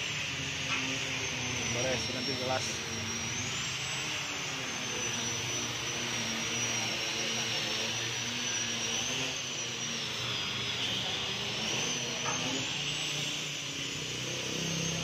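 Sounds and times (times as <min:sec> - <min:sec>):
machine drone with high whine: 0:00.0 - 0:15.0.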